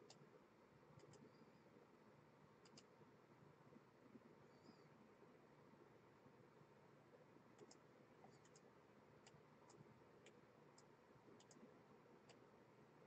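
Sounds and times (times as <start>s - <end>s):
computer mouse clicks: 0.0s - 0.3s, 1.0s - 1.4s, 2.6s - 3.0s, 7.5s - 12.5s.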